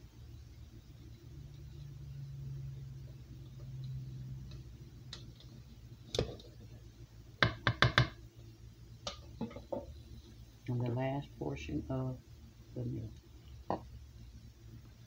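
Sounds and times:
low hum: 0:00.0 - 0:07.4
utensil knocking on metal bowl: 0:07.4 - 0:08.2.

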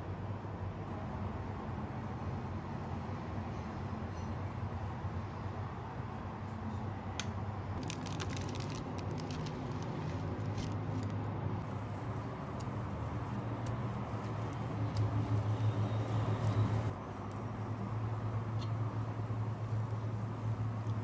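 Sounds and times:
plastic wrap crinkling: 0:07.8 - 0:11.2.

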